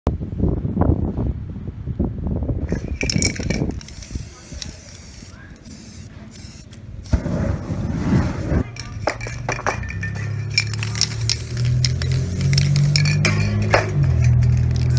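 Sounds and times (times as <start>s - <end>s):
spray paint hissing: 2.6s - 14.9s
clinking: 2.7s - 4.8s, 8.6s - 14.9s
spray can rattle clicking: 2.7s - 7.2s, 8.3s - 14.9s.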